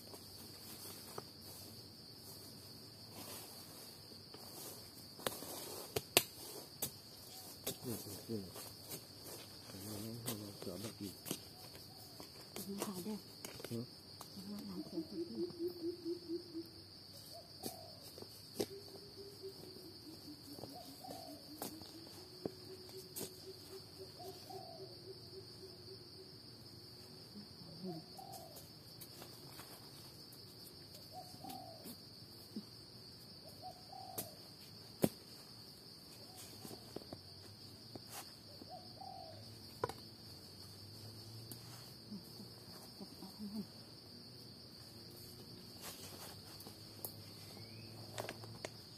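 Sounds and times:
high insect drone: 0:00.0 - 0:48.9
knocks and snaps in leaf litter: 0:05.2 - 0:07.0
bird low hooting calls: 0:14.8 - 0:18.0, 0:18.6 - 0:26.0, 0:27.9 - 0:28.6, 0:31.1 - 0:31.9, 0:33.5 - 0:34.4, 0:38.7 - 0:40.0.

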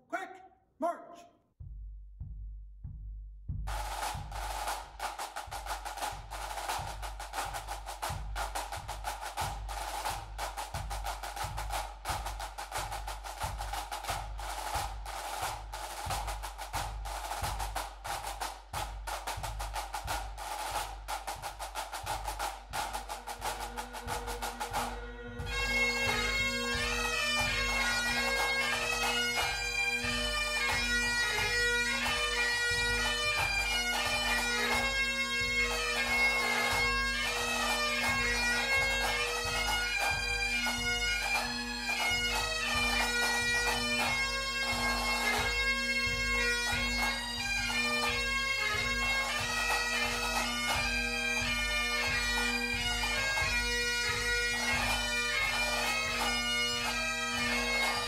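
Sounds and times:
snare and bass drums marching: 0:01.6 - 0:58.0
bagpipe drones: 0:22.1 - 0:58.0
bagpipe chanters playing tune: 0:22.2 - 0:58.0.

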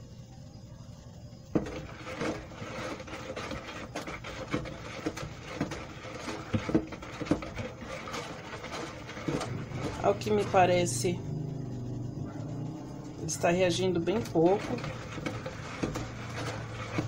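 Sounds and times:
blender shaft stirring oil: 0:01.4 - 0:17.0
knocking and scraping on bucket: 0:01.5 - 0:11.2, 0:13.1 - 0:17.0.

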